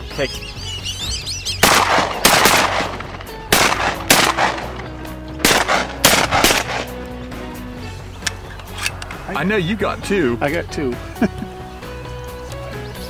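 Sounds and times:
shotgun blasts: 1.6 - 7.0.

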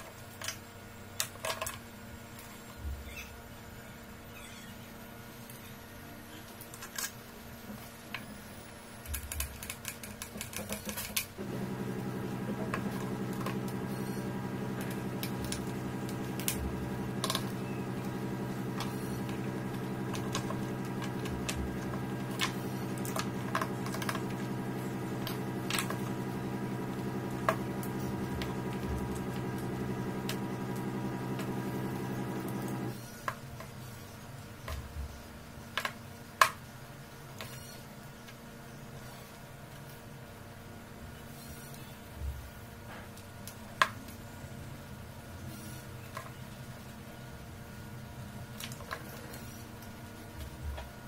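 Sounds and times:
low background hum: 0.0 - 51.0
steady hum: 11.4 - 33.0.

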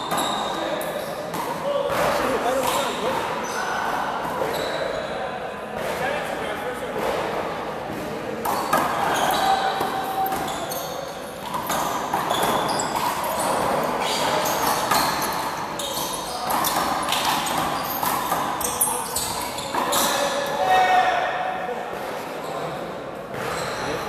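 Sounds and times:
sneakers squeaking on court: 0.0 - 1.4, 2.2 - 5.2, 8.5 - 20.5, 22.4 - 24.0.

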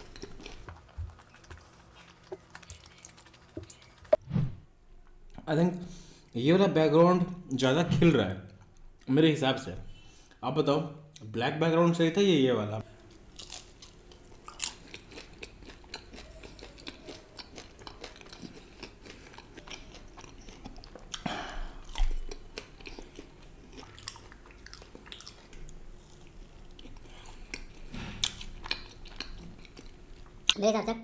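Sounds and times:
chewing crunchy snack: 0.0 - 4.2, 13.0 - 30.6.

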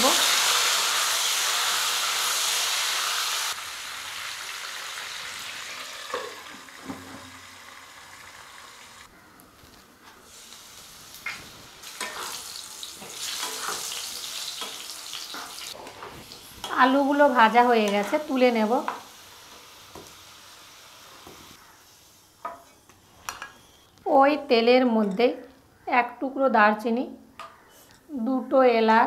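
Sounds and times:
potatoes sizzling in oil: 0.0 - 9.1, 10.2 - 22.4.

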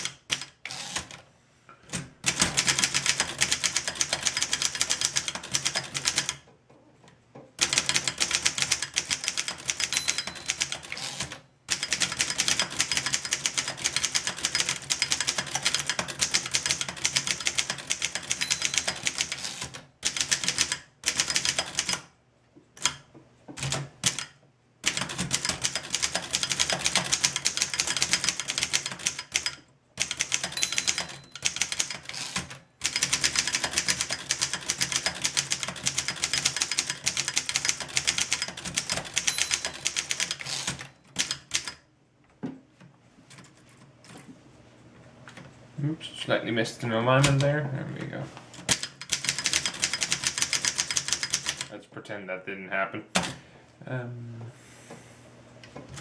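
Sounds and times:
typewriter typing: 0.0 - 1.2, 1.9 - 6.5, 7.6 - 22.1, 22.8 - 23.0, 23.6 - 41.8, 47.2 - 47.5, 48.6 - 51.7.

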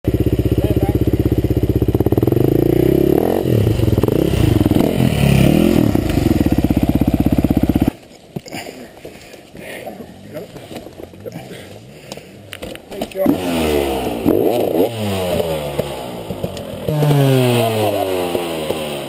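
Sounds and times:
dirt bike engine revving: 0.1 - 8.0, 13.1 - 19.0.

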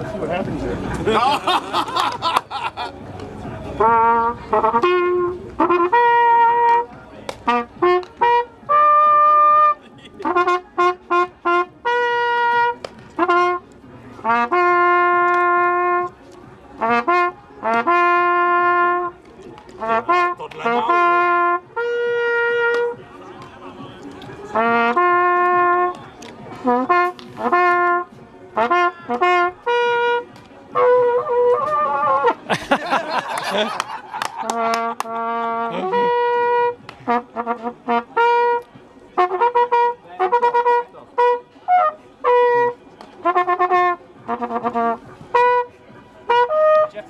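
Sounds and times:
valveless trumpet long notes: 3.8 - 13.6, 14.2 - 16.2, 16.8 - 19.2, 19.8 - 23.0, 24.5 - 26.0, 26.6 - 32.5, 34.3 - 47.0.

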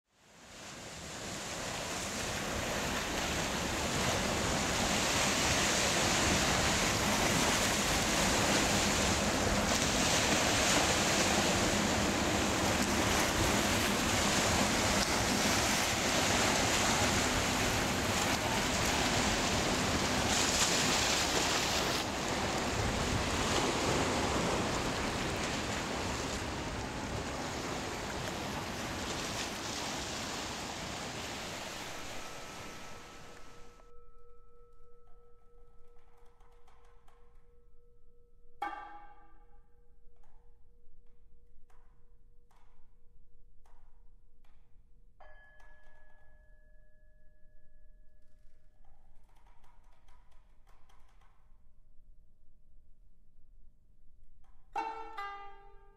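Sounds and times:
waves breaking on pebbly shore: 0.3 - 33.5.

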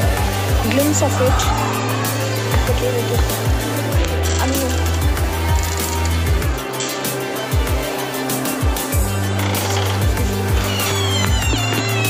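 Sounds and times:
bass line: 0.6 - 4.8.

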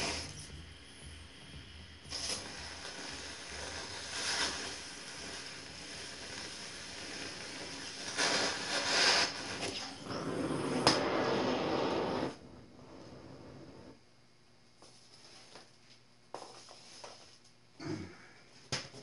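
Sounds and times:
cutting torch hissing: 0.0 - 14.0.

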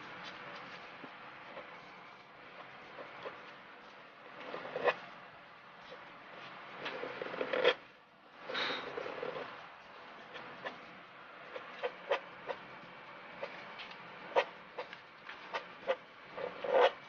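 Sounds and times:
pen nib scratching on paper: 0.3 - 5.0, 11.4 - 17.0.

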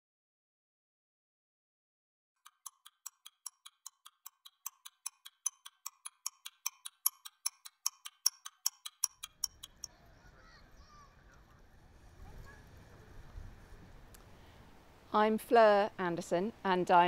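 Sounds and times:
rapid high ticking: 2.4 - 9.9.

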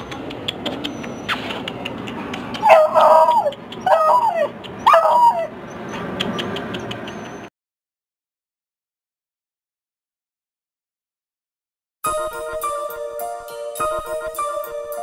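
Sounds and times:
dog howling: 2.6 - 5.6.

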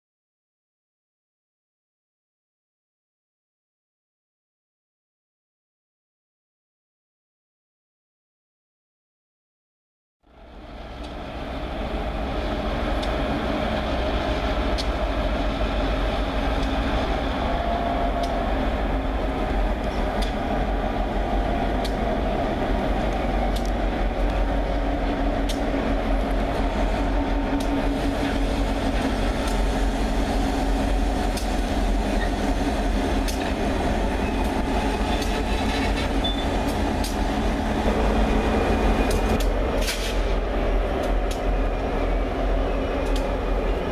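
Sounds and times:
diesel locomotive engine rumble: 10.3 - 43.9
metallic clicks from train wheels: 10.8 - 17.2, 18.1 - 41.8, 42.6 - 43.9.

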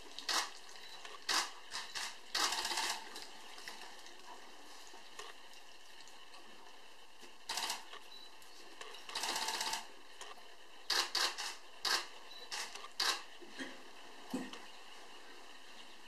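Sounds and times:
camera shutter clicks: 10.9 - 13.2.

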